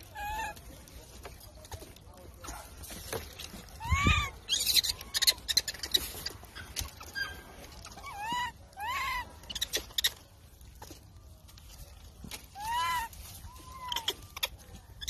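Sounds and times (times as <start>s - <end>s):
baby monkey cooing calls: 0.0s - 0.7s, 3.7s - 10.2s, 12.4s - 15.0s
dry leaves and twigs crackling: 0.0s - 15.0s.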